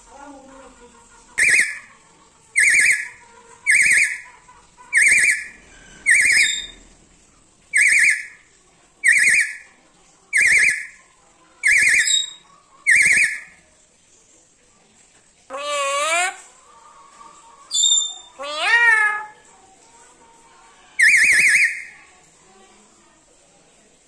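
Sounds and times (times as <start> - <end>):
parrot shrill warbling squeals: 1.4 - 1.9, 2.6 - 4.3, 4.9 - 6.8, 7.7 - 8.4, 9.0 - 9.7, 10.4 - 11.0, 11.6 - 13.5, 15.5 - 16.4, 17.7 - 19.4, 21.0 - 22.0.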